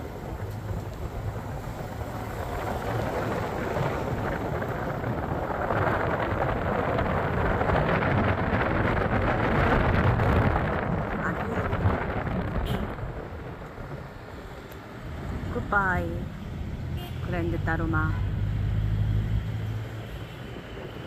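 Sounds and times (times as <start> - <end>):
car road noise: 0.0 - 21.0
wind rumble on microphone: 0.0 - 21.0.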